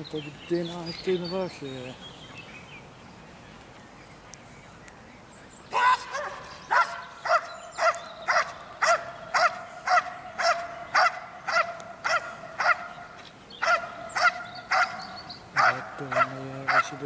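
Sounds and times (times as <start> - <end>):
dog barking rhythmically: 5.8 - 12.9, 13.6 - 17.0.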